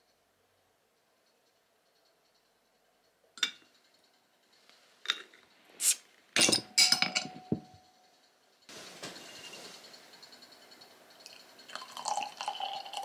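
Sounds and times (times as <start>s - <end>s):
glass bottles clinking: 6.4s - 7.8s, 11.7s - 13.0s
steady hiss: 8.7s - 12.4s.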